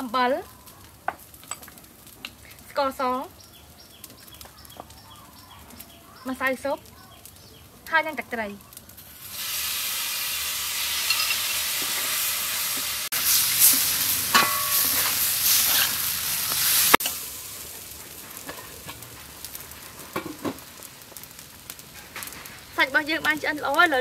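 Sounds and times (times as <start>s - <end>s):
pot bubbling over a fire: 0.0s - 24.0s
rice sizzling in a wok: 0.0s - 24.0s
spatula scraping a wok: 9.0s - 20.8s.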